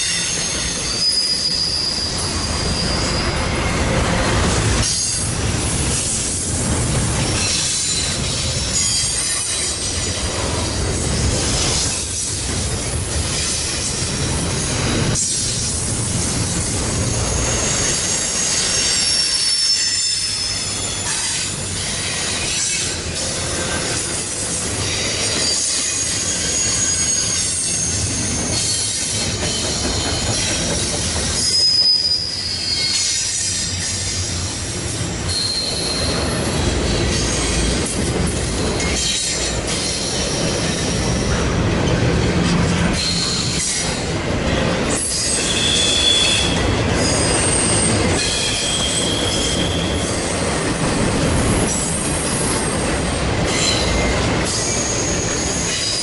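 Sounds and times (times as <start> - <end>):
wheel squeal: 0.0 - 3.9, 17.1 - 22.7, 24.8 - 34.3, 35.3 - 37.7, 42.9 - 43.9, 44.9 - 50.3, 53.5 - 56.0
train cars rumbling: 0.0 - 56.0.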